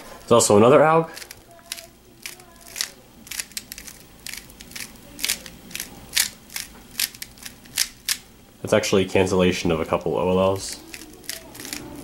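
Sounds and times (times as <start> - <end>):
puzzle cube plastic clicks: 1.2 - 8.2, 10.7 - 12.0.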